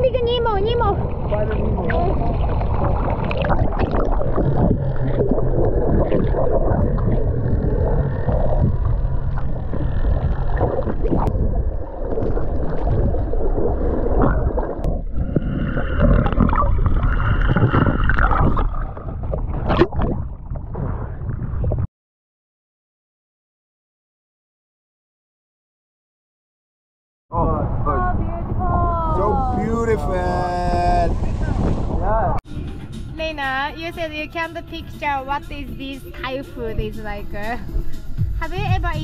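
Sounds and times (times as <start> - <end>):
speedboat engine rumble: 0.0 - 14.3, 27.4 - 39.0
water rushing: 0.0 - 20.4, 28.2 - 32.4.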